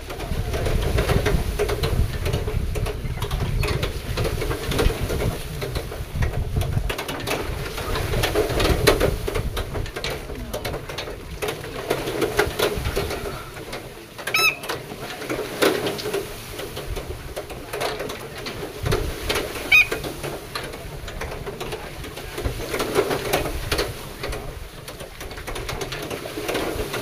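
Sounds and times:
wooden rig clattering: 0.0 - 27.0
high squeaks: 14.3 - 14.8, 19.6 - 20.0.

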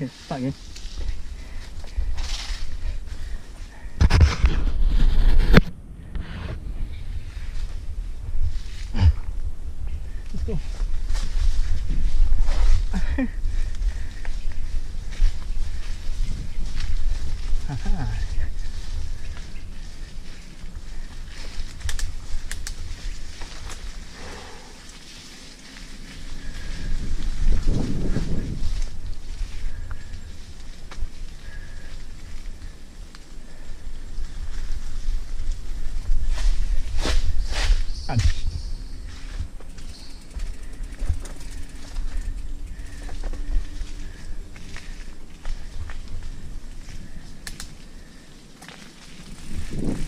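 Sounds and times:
mountain bike rattling: 0.6 - 3.7, 6.6 - 50.0
wind on microphone: 3.9 - 24.1, 26.1 - 32.6, 49.2 - 50.0.

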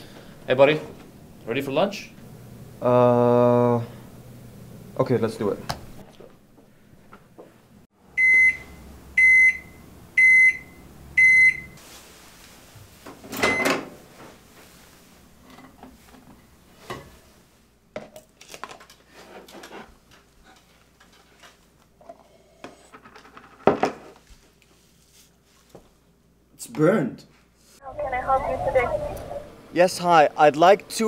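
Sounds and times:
microwave low hum: 0.0 - 17.9
microwave oven beeping: 8.1 - 11.8, 13.3 - 13.9.

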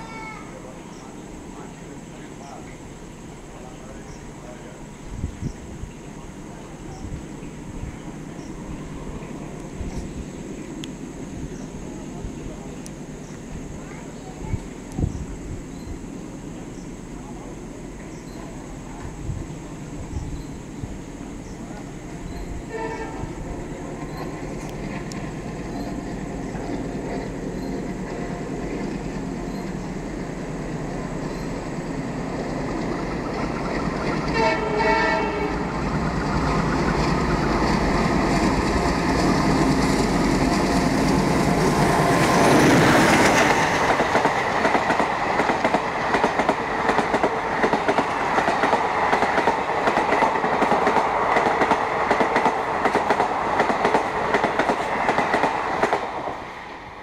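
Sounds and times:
diesel locomotive engine: 0.0 - 57.0
locomotive horn: 22.6 - 23.4, 34.3 - 35.7.

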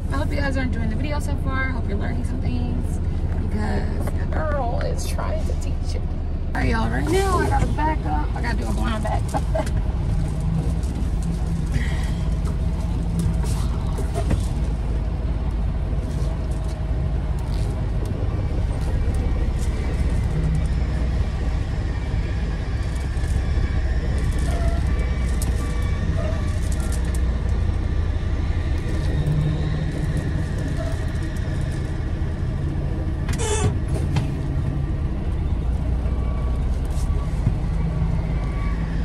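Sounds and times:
truck engine rumbling: 0.0 - 39.0
high-pitched squeak: 33.4 - 33.8.

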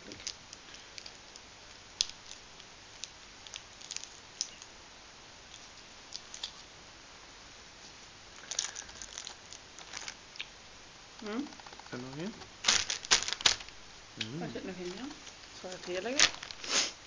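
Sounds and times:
plastic wrapper crinkling: 2.0 - 4.7, 8.4 - 10.5, 11.6 - 13.8, 14.8 - 16.7.

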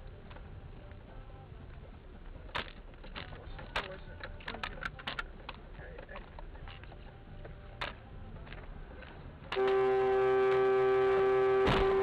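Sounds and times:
road and cabin rumble: 0.0 - 12.0
car horn steady tone: 9.6 - 12.0.

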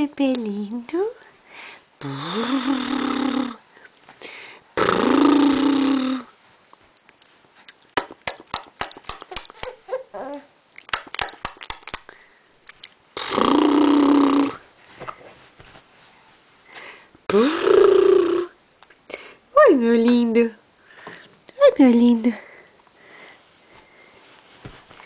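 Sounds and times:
baby long vocalizations: 9.3 - 10.5.

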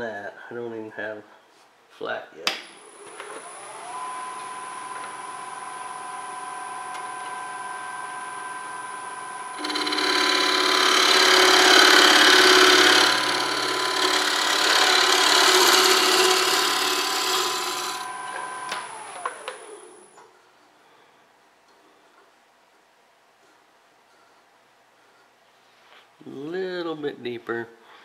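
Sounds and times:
wood lathe motor whine: 2.9 - 20.2
gouge cutting spinning wood: 9.5 - 20.0.

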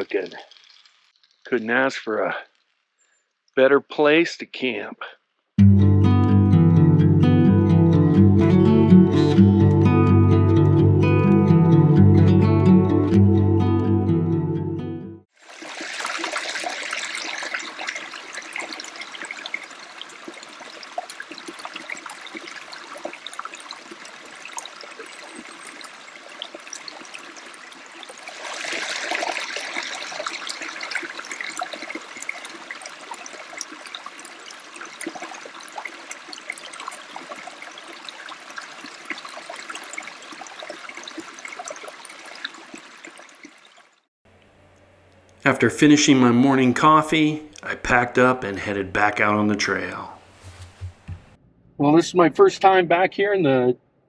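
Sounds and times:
stream flowing and trickling: 0.0 - 4.9, 15.2 - 44.1, 45.5 - 51.0.

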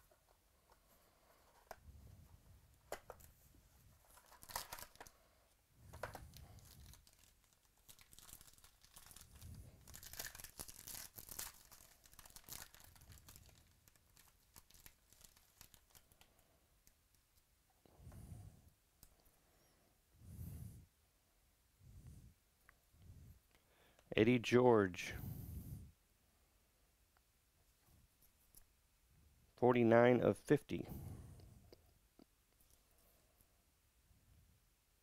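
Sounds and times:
plastic wrap crinkling: 4.0 - 5.2, 5.9 - 17.0.

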